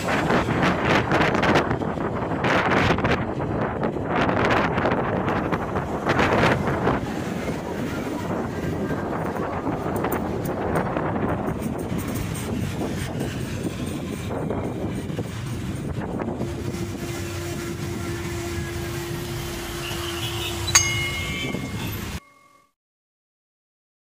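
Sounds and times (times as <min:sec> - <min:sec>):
road and traffic noise: 0:00.0 - 0:22.2
wind rumbling on microphone: 0:00.0 - 0:22.2
bright ding: 0:20.7 - 0:22.7.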